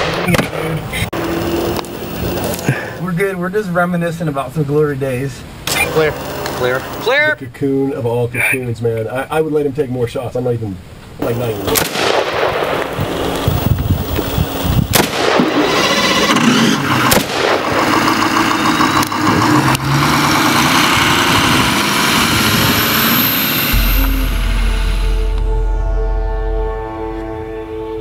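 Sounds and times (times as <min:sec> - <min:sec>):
vehicle engine running: 0:00.0 - 0:03.0, 0:12.6 - 0:28.0
rifle shots: 0:11.6 - 0:13.5, 0:14.9 - 0:16.3, 0:17.0 - 0:18.3
low steady hum: 0:23.7 - 0:28.0.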